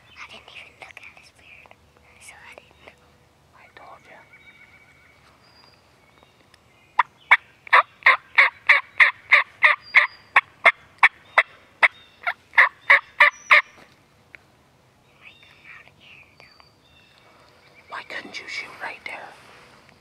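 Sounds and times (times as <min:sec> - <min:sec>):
turkey yelps: 0:07.0 - 0:13.6.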